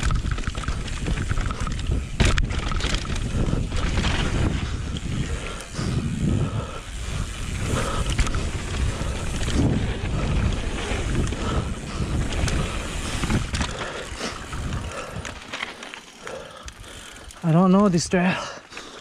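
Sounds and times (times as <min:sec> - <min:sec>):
bike knocks and rattles: 0:00.0 - 0:05.3, 0:07.3 - 0:16.0
tyres rolling over rock: 0:00.0 - 0:06.0
wind rushing over microphone: 0:00.0 - 0:15.4.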